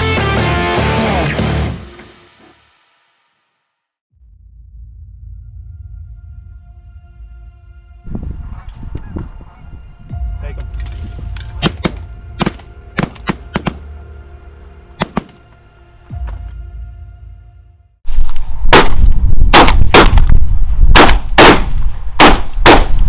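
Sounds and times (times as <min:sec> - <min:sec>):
background music: 0:00.0 - 0:02.3, 0:05.1 - 0:18.0
wind rumble on microphone: 0:08.0 - 0:11.6, 0:18.1 - 0:23.0
shotgun shots: 0:18.7 - 0:20.3, 0:20.9 - 0:23.0.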